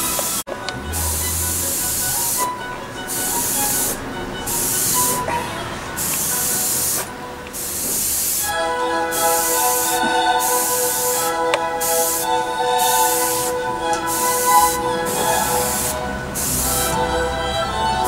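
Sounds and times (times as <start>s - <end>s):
airbrush spraying paint hiss: 6.0s - 8.5s, 9.1s - 11.2s, 11.8s - 13.5s, 14.1s - 16.9s.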